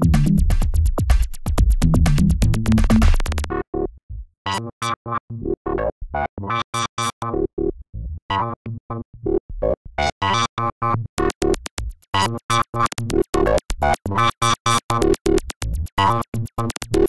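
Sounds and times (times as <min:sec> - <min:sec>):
sharp percussive ticks: 0:01.1 - 0:03.5, 0:11.2 - 0:13.6.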